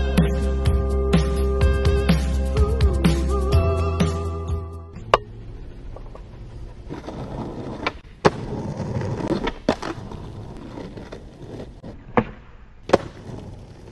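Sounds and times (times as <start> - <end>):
skateboard wheels rolling on concrete: 5.1 - 13.9.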